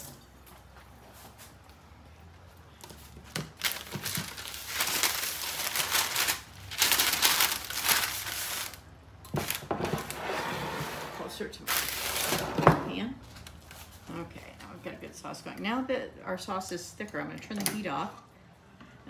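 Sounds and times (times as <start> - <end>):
paper crumpling and rustling: 3.1 - 8.8.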